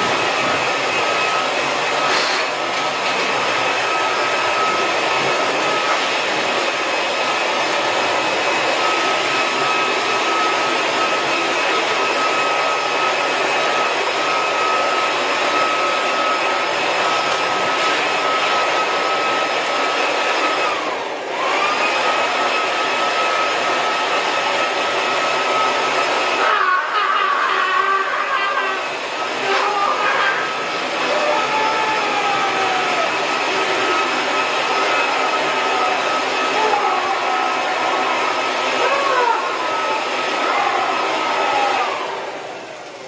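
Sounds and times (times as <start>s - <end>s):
fan blower whining: 0.0s - 43.0s.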